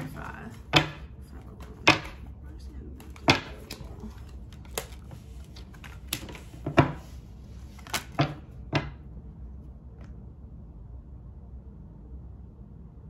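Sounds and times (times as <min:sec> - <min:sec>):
cards shuffled and laid down: 0:03.0 - 0:09.0.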